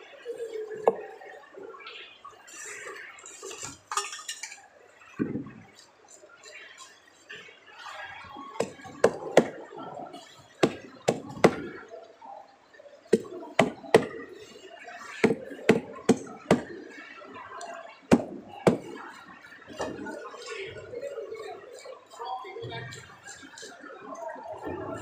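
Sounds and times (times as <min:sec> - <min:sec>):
knife knocking on wooden block: 0:10.6 - 0:11.7, 0:13.2 - 0:14.2, 0:15.2 - 0:16.7, 0:18.1 - 0:18.9.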